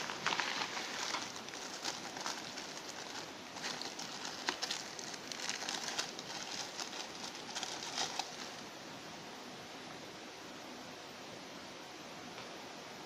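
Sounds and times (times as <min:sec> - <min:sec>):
plastic bag crinkling: 0:00.0 - 0:08.6
steady hiss: 0:00.0 - 0:13.0.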